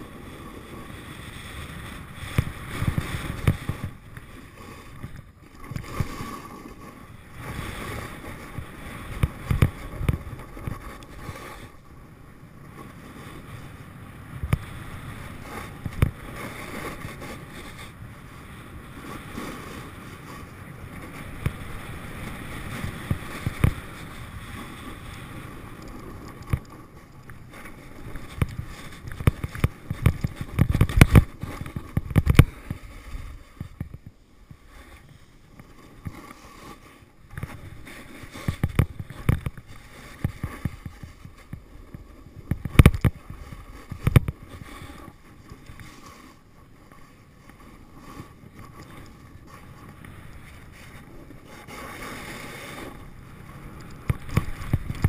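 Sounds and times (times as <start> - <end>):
snowboard scraping snow: 0.0 - 55.0
wind buffeting microphone: 13.0 - 34.6.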